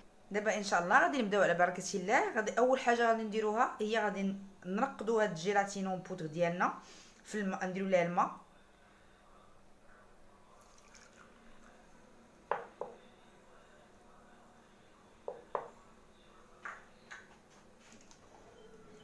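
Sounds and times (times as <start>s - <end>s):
kitchenware knocking on wooden table: 12.5s - 13.0s, 15.3s - 15.8s.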